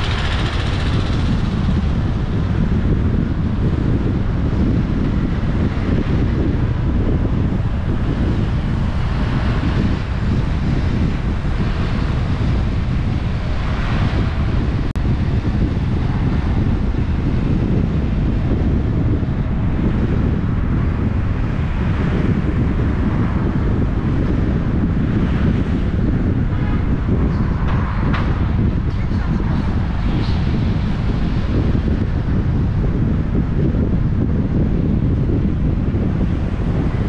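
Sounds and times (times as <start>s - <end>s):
wind buffeting microphone: 0.0s - 37.0s.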